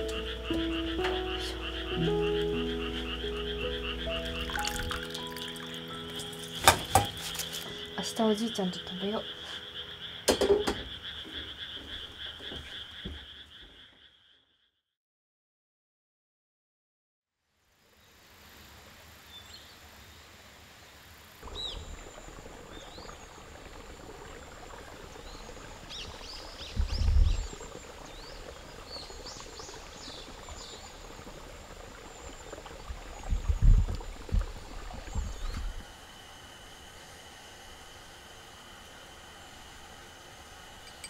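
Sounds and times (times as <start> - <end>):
steady background hiss: 0.0 - 11.7.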